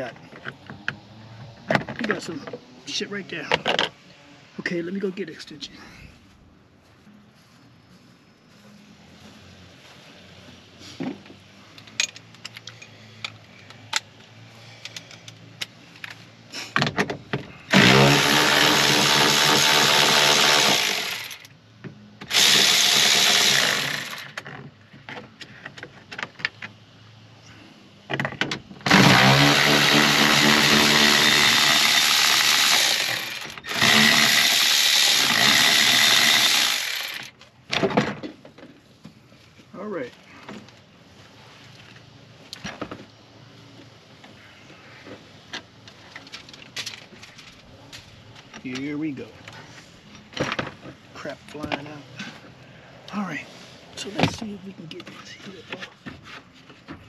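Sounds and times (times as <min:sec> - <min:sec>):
tools clicking and knocking: 0:11.7 - 0:14.1
power drill running: 0:17.7 - 0:21.5, 0:22.3 - 0:24.4, 0:28.9 - 0:37.3.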